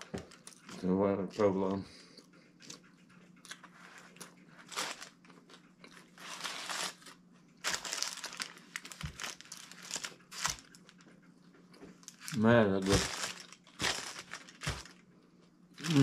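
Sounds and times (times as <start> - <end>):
chewing: 2.2 - 6.2
paper wrappers crinkling: 3.9 - 11.1, 12.0 - 15.0, 15.8 - 16.0.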